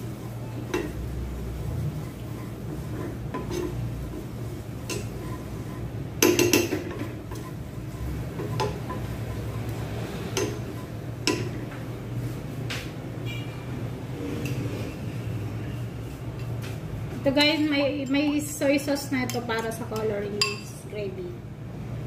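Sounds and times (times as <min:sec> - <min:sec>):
spoon scraping frying pan: 0:00.2 - 0:11.8.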